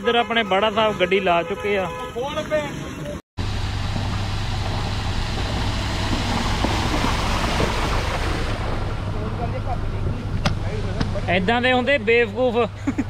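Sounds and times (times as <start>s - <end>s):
tyres splashing through water: 0.7s - 11.9s
car engine running: 3.4s - 13.0s.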